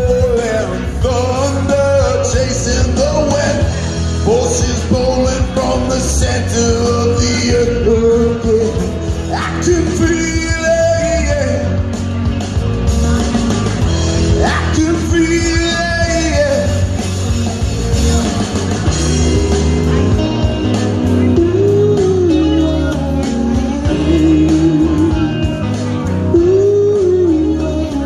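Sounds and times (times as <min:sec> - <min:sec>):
man singing: 0:00.0 - 0:28.0
rock music through speakers: 0:00.0 - 0:28.0
second voice singing: 0:19.0 - 0:28.0.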